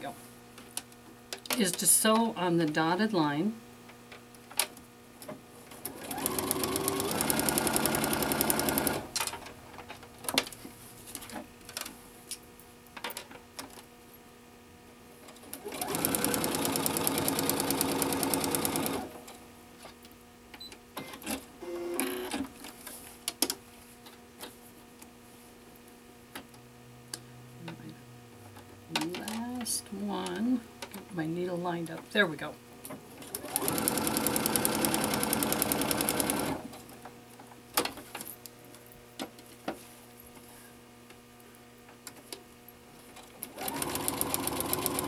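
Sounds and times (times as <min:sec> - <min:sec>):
sewing machine stitching: 0:05.8 - 0:09.1, 0:15.6 - 0:19.1, 0:33.3 - 0:36.6, 0:43.5 - 0:45.0.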